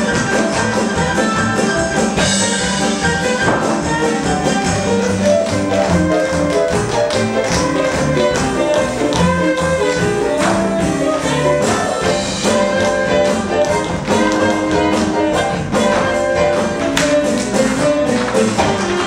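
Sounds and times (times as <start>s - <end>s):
brassy orchestra music: 0.0s - 19.0s
tap shoe strikes: 3.4s - 3.8s.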